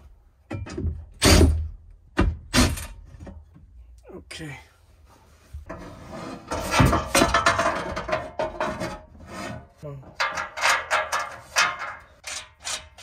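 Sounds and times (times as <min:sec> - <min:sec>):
metal rack scraping: 0:05.6 - 0:13.0.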